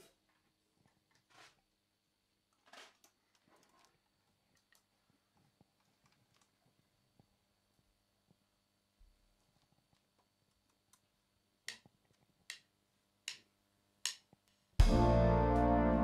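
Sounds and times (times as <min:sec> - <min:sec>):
jazz band playing held chord: 0:14.8 - 0:16.0.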